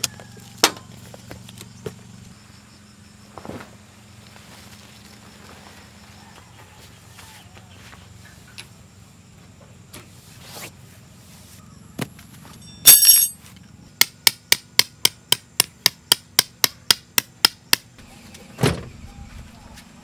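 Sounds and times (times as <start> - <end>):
loud ringing clang: 12.6 - 13.4
hammer striking tent stake: 12.9 - 13.4, 14.0 - 17.9.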